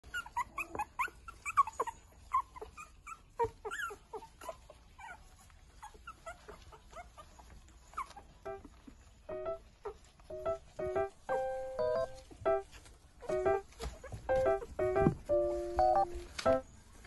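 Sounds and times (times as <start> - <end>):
puppies squeaking and yelping: 0.0 - 16.7.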